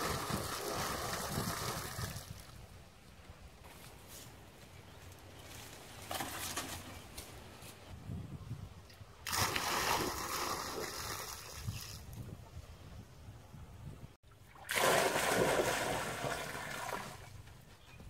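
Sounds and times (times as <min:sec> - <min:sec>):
water splashing and sloshing: 0:00.0 - 0:02.7, 0:09.2 - 0:12.2, 0:14.3 - 0:17.6.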